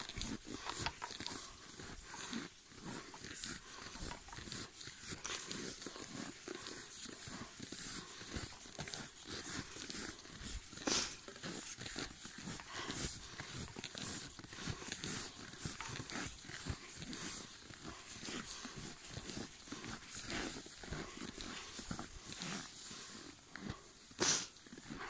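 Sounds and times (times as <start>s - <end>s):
dogs breathing: 0.0s - 25.0s
dogs running through snow: 0.0s - 25.0s.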